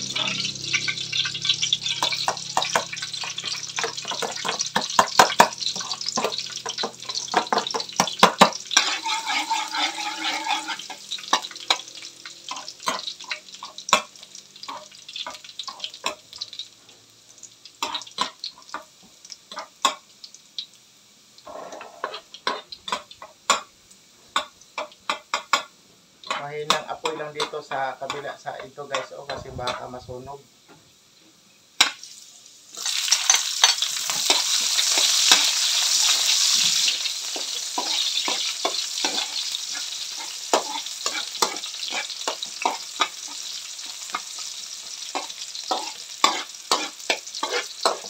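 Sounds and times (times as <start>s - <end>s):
metal spatula scraping pan: 0.0s - 13.3s, 21.5s - 23.0s, 33.1s - 44.5s, 45.1s - 48.0s
garlic sizzling in oil: 0.0s - 48.0s.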